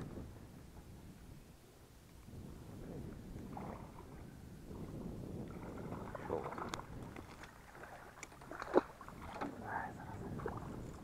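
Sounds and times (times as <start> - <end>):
water splashing around boat: 2.9 - 11.0.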